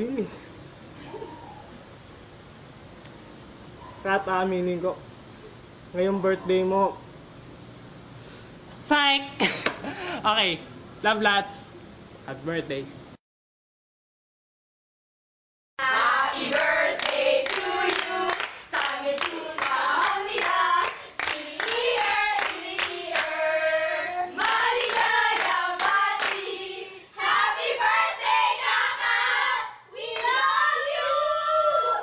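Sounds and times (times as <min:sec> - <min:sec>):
hands clapping: 0:16.5 - 0:23.3, 0:24.4 - 0:26.5.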